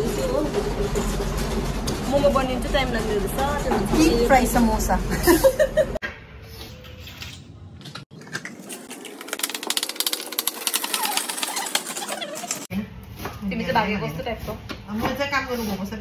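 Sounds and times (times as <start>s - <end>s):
food chopper whirring: 9.0s - 12.7s.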